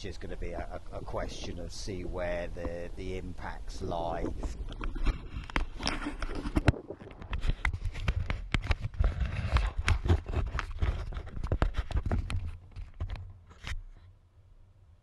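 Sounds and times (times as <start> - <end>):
wind rumble on microphone: 0.5 - 10.4
hand handling camera: 4.1 - 14.0.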